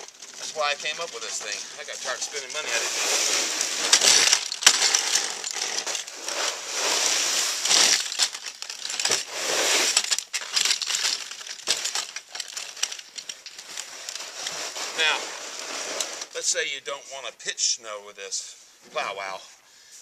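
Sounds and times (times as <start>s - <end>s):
snow plow blade scraping snow: 0.0s - 8.2s, 9.0s - 10.0s, 14.0s - 16.5s.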